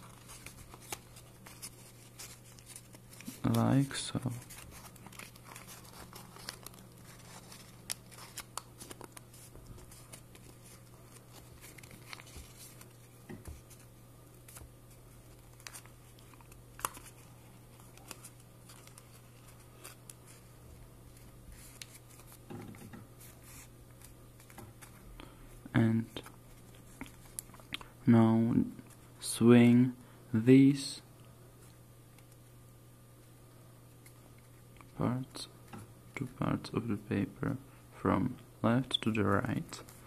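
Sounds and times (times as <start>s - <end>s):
paper crinkling and creasing: 0.0s - 25.1s, 26.0s - 27.7s
steady low hum: 0.0s - 40.0s.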